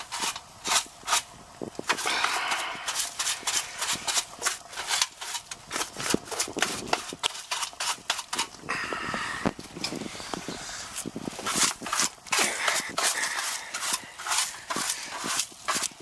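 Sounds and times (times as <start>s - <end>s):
brush scrubbing sheet metal: 2.1s - 8.6s, 11.3s - 16.0s.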